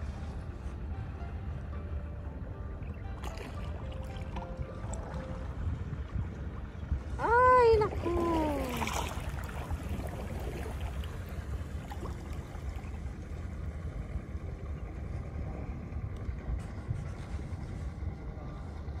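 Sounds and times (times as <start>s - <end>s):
faint water noise: 0.0s - 19.0s
wind rumble on microphone: 0.0s - 19.0s
water splash: 3.2s - 5.5s, 7.8s - 13.2s.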